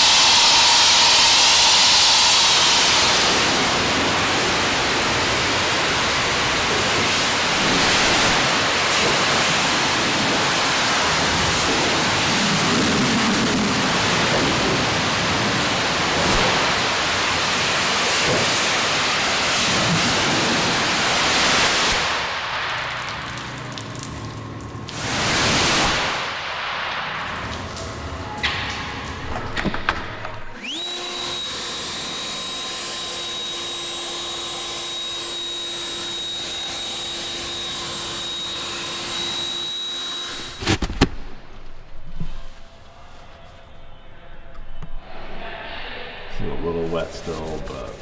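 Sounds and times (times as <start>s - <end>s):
pressure washer spraying water: 0.0s - 24.1s, 24.9s - 26.2s, 30.6s - 40.6s.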